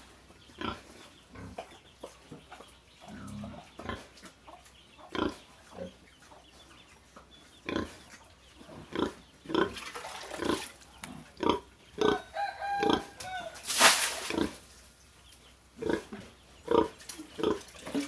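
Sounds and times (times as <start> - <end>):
pig grunting: 3.1 - 4.1, 15.8 - 18.0.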